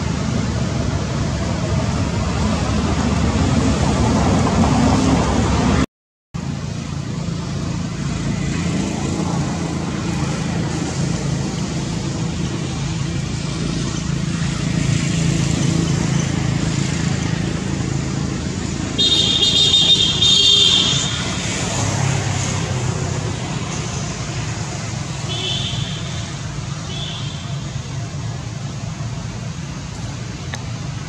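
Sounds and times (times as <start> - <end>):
motor traffic rumble: 0.0 - 31.0.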